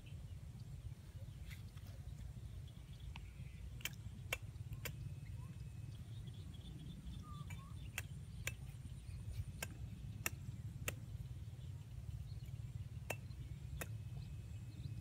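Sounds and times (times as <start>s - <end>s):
sharp clicks: 3.2s - 5.0s, 7.4s - 8.8s, 9.6s - 11.1s.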